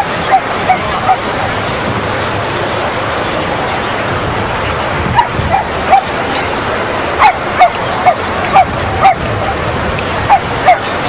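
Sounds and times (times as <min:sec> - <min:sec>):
dog barking: 0:00.0 - 0:01.2, 0:05.1 - 0:06.1, 0:07.2 - 0:09.2, 0:10.3 - 0:10.9
steady background hiss: 0:00.0 - 0:11.0.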